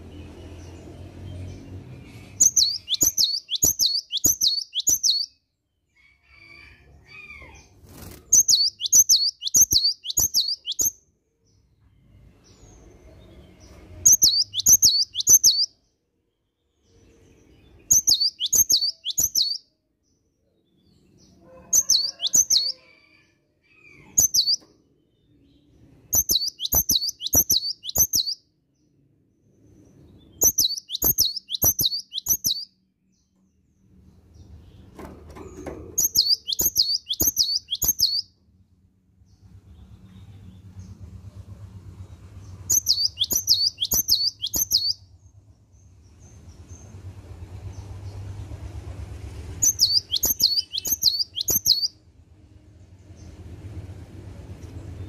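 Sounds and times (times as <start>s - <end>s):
bird singing ringing notes: 2.4s - 5.4s, 8.4s - 10.9s, 14.0s - 15.7s, 17.8s - 19.6s, 26.1s - 28.4s, 30.4s - 32.7s, 36.0s - 38.3s, 42.7s - 45.0s, 49.6s - 51.9s.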